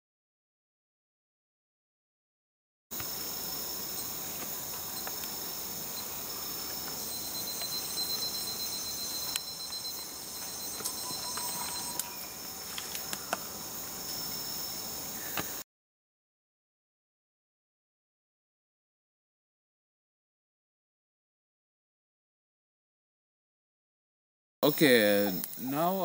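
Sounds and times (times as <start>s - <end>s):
insect chorus trills and whines: 3.0s - 15.6s, 24.6s - 26.0s.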